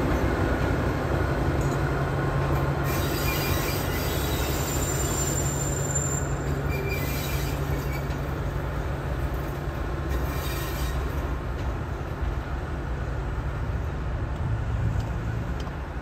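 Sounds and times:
diesel locomotive engine drone: 0.0 - 16.0
high wheel squeal: 2.8 - 8.2, 10.1 - 11.2.

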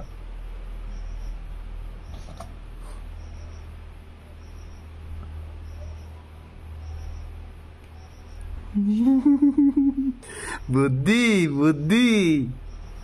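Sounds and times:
steady low hum: 0.0 - 13.0
faint high chirps: 0.8 - 2.3, 2.9 - 13.0.

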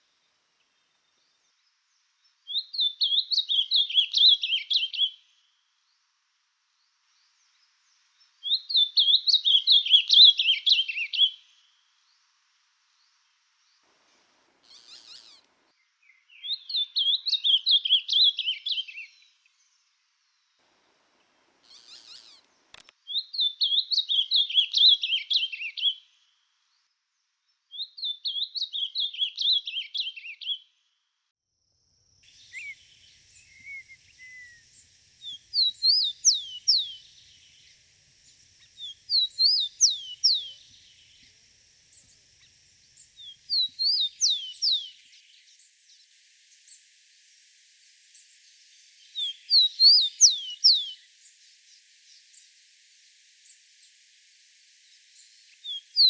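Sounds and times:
faint steady hiss: 0.0 - 56.0
sparrow whistling song: 2.4 - 5.2, 8.2 - 11.5, 14.7 - 15.4, 16.0 - 19.4, 21.7 - 22.4, 23.1 - 26.0, 27.7 - 30.6, 32.2 - 45.6, 49.0 - 51.1
bird singing warbled phrase: 32.4 - 37.9, 38.6 - 41.1.

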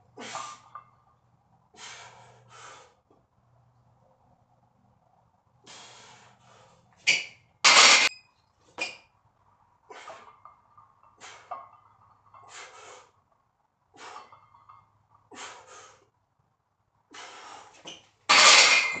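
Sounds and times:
person breathing hard: 1.7 - 3.0, 5.6 - 6.9, 12.4 - 13.2, 15.3 - 16.1, 17.1 - 17.9.

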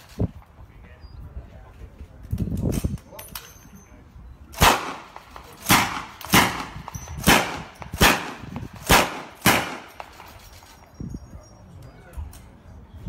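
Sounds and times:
machine gun single shots: 4.6 - 10.4.

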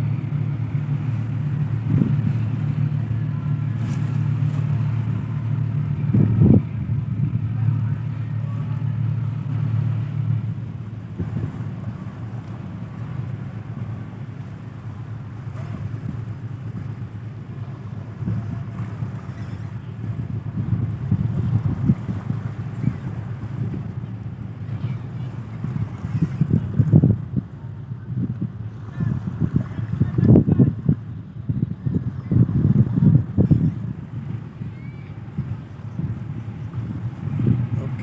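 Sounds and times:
diesel engines droning: 0.0 - 38.0.

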